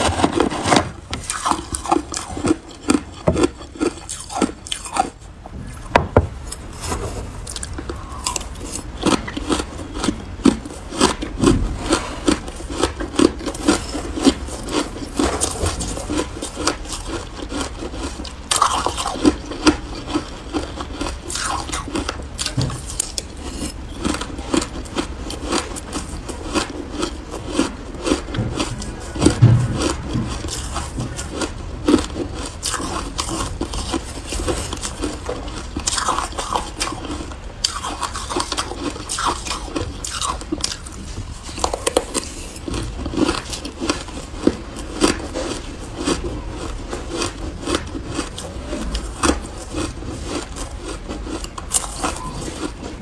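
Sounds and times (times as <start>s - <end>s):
shaved ice crunching: 10.9s - 53.0s.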